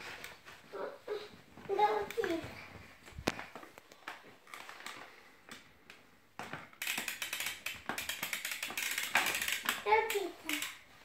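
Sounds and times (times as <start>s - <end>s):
plastic toy clicking and rattling: 6.5s - 10.9s.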